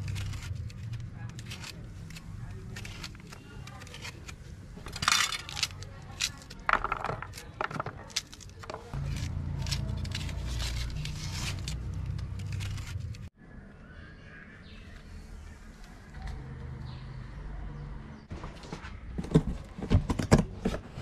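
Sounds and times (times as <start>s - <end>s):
knife cutting fruit rind: 0.0s - 4.8s, 7.2s - 13.3s.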